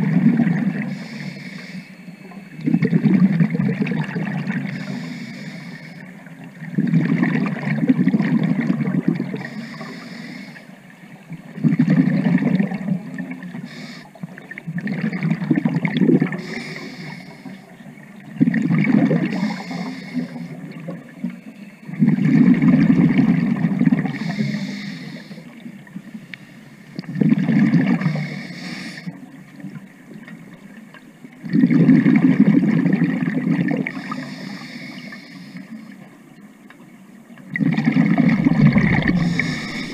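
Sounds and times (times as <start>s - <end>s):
regulator inhalation hiss: 0.9s - 2.1s, 4.7s - 6.0s, 9.4s - 10.8s, 13.6s - 14.1s, 16.4s - 17.6s, 19.3s - 20.6s, 24.1s - 25.5s, 28.0s - 29.1s, 34.0s - 35.9s, 38.7s - 39.9s
bubbling exhalation underwater: 37.6s - 39.9s.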